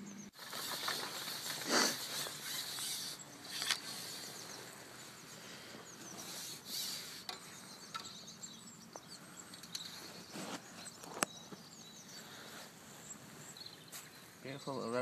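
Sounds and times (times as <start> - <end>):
faint outdoor hiss: 0.0 - 15.0
soft handling rustles: 9.8 - 14.4.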